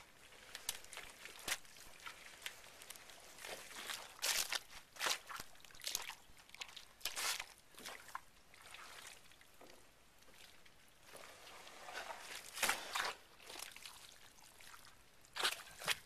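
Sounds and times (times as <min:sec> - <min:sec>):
squelching in thick mud: 0:00.0 - 0:09.4, 0:10.3 - 0:16.0
footsteps in mud: 0:00.3 - 0:08.0, 0:15.4 - 0:16.0.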